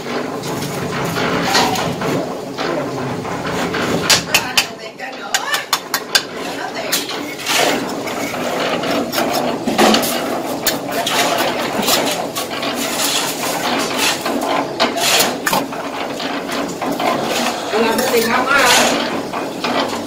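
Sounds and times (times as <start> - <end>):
trowel knocking on bricks: 3.9 - 6.3
trowel scraping mortar: 5.4 - 20.0.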